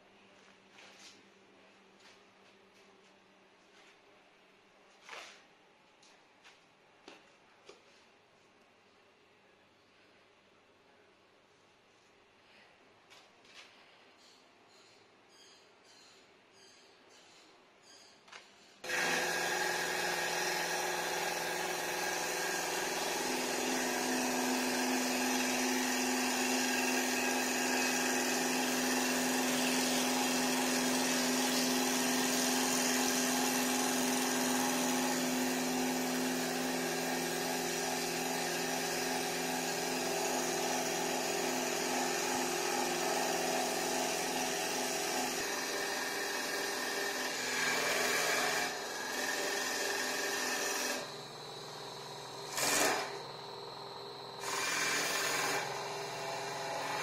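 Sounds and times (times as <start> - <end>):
cutter shaving spinning wood: 18.8 - 57.0
lathe machine hum and whine: 18.9 - 31.4, 33.1 - 57.0.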